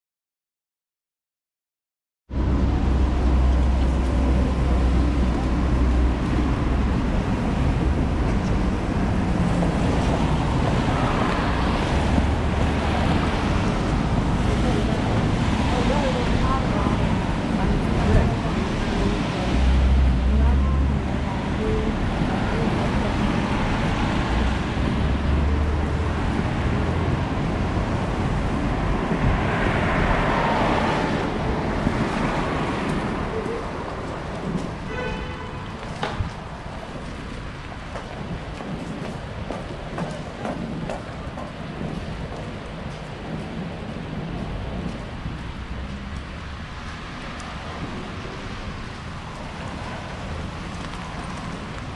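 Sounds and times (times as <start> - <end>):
traffic on wet road: 2.4 - 51.9
rain hiss on wet pavement: 2.7 - 51.9
rain on an umbrella: 30.4 - 51.9.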